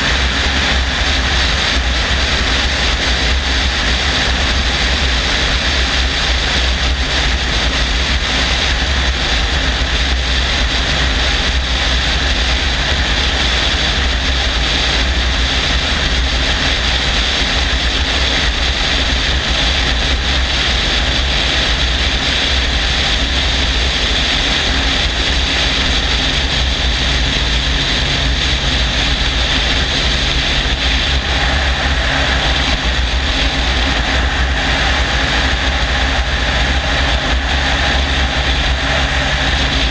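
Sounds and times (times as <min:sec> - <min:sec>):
helicopter engine and rotor drone: 0:00.0 - 0:39.9.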